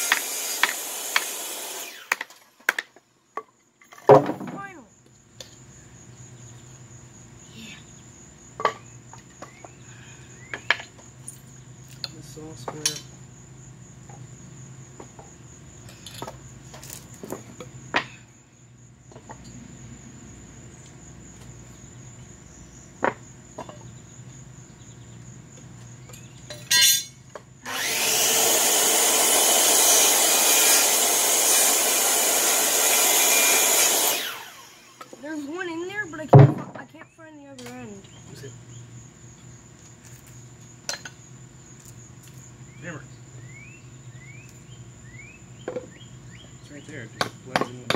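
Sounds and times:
circular saw cutting wood: 0.0s - 2.4s, 27.6s - 35.5s.

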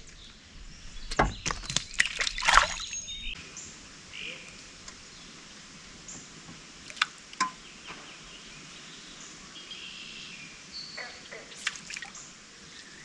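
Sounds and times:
birds calling: 0.0s - 5.4s
steady outdoor hiss: 0.0s - 13.0s.

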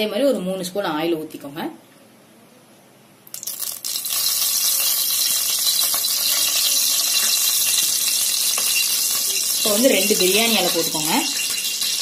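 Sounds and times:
oil sizzling in a pot: 3.3s - 12.0s.

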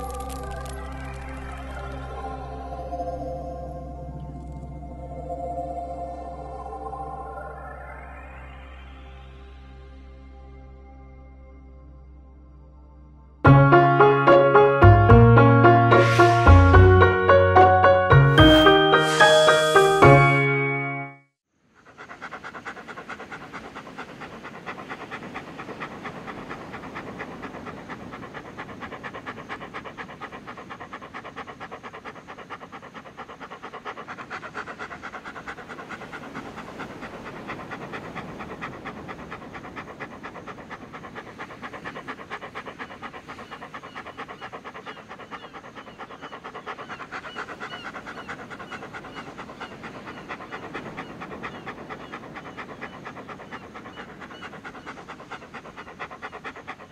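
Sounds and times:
dog panting: 0.0s - 1.4s, 13.6s - 20.8s, 21.8s - 56.9s.

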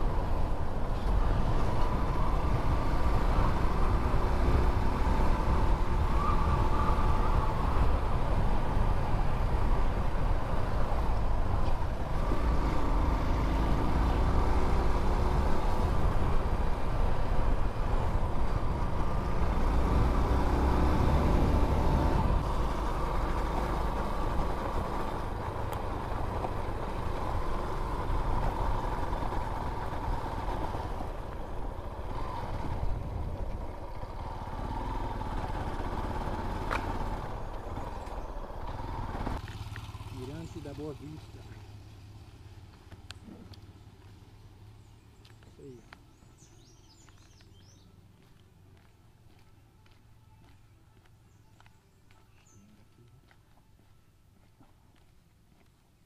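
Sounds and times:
wind rumble on microphone: 29.8s - 34.0s.

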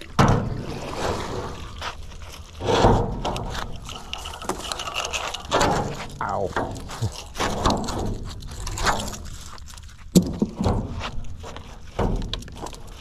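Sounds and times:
wet rope hauled in: 0.0s - 13.0s
rope scraping on wood: 0.6s - 10.1s.

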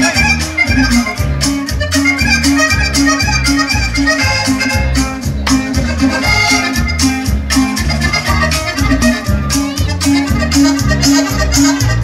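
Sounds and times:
latin dance music with accordion: 0.0s - 12.0s.

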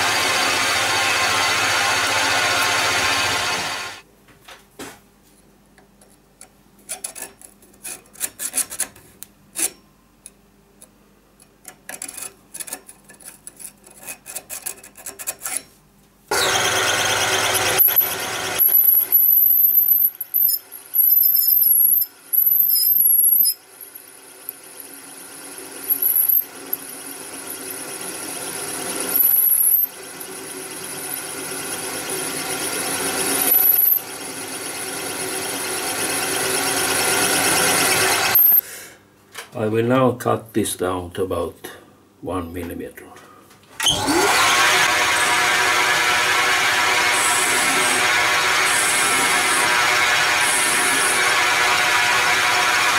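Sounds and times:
lathe running: 0.0s - 4.0s, 16.3s - 21.1s, 23.8s - 38.6s, 43.9s - 52.9s
high squeal of cutting tool: 16.3s - 23.6s, 25.8s - 26.9s, 29.0s - 30.0s, 33.1s - 34.1s, 36.9s - 38.6s, 46.5s - 52.9s.

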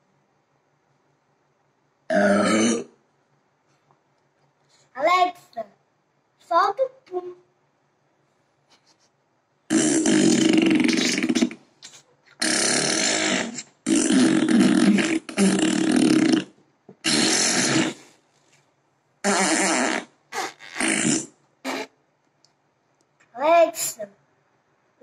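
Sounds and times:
fart sound effects from speaker: 9.7s - 11.7s, 12.4s - 18.2s, 19.2s - 22.0s.

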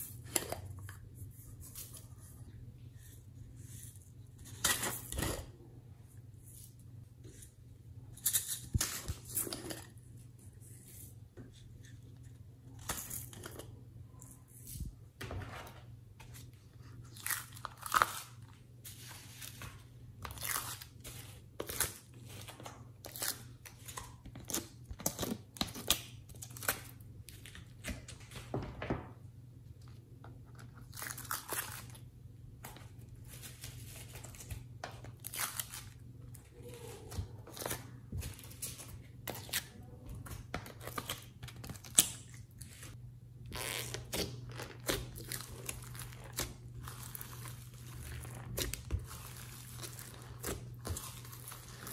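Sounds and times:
sticky clay squishing: 30.2s - 51.9s
plastic crinkling: 43.7s - 51.9s.

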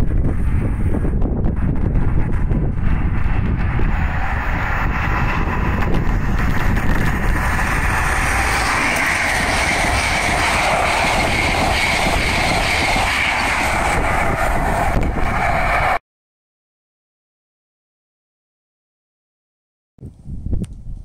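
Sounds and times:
train wheel and rail rush: 0.0s - 16.0s
wind buffeting microphone: 0.0s - 16.0s, 20.0s - 21.0s.

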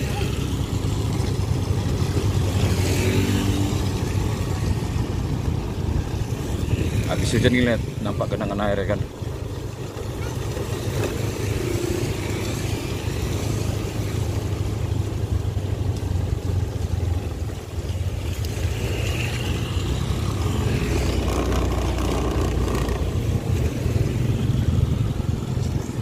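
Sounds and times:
motorcycle engine drone: 0.0s - 26.0s
rushing wind: 0.0s - 26.0s
tyre noise on wet road: 0.0s - 26.0s.

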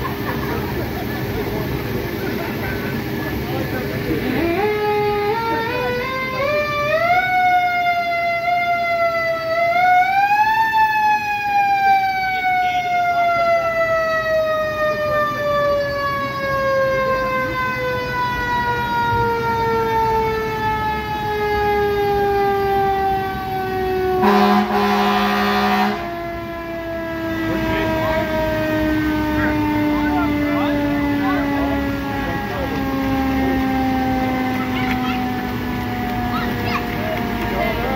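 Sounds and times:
fire truck siren wailing: 0.0s - 37.9s
horn blast: 24.1s - 26.2s.

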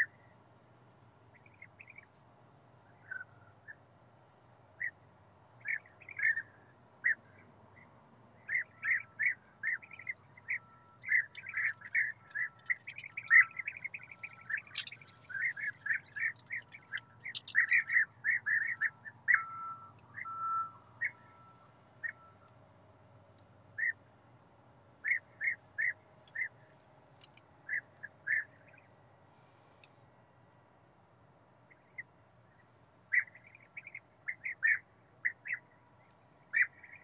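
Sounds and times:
birds calling: 5.6s - 22.5s, 23.8s - 24.0s, 25.0s - 28.9s, 32.6s - 35.6s, 36.5s - 37.0s.

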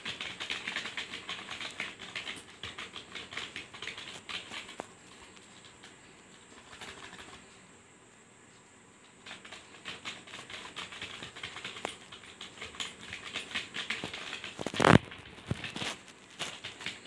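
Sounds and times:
keyboard typing: 0.0s - 5.0s, 9.3s - 17.0s.

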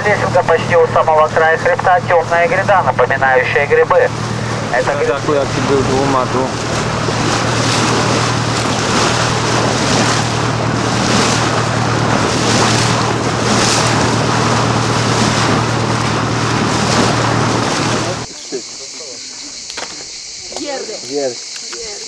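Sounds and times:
motor boat engine humming: 0.0s - 18.3s
rushing water: 4.2s - 18.3s.

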